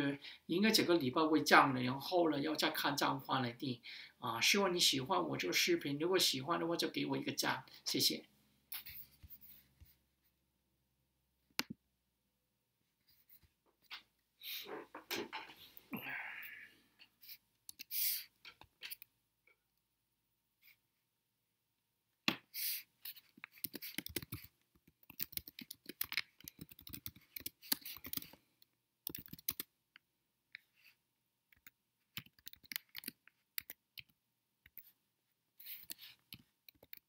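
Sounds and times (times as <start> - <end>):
computer keyboard and mouse clicks: 23.4 - 28.4, 29.0 - 29.7, 31.5 - 34.9, 35.8 - 37.0.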